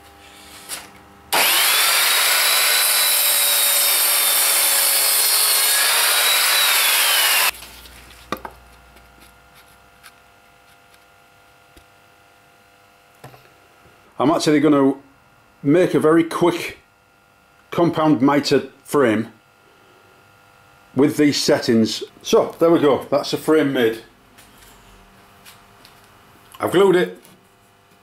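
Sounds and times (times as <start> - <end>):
mitre saw cutting wood: 1.3 - 7.6.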